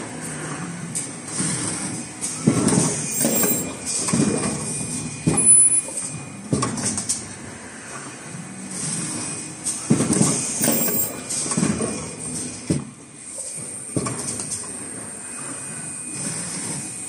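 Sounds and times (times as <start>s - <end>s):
machine running: 0.0s - 17.0s
machine clunks: 2.4s - 7.2s, 9.8s - 12.9s.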